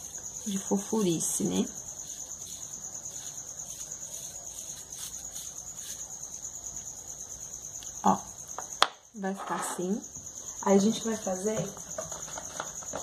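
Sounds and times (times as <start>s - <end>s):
brush scratching modelling clay: 0.0s - 7.0s.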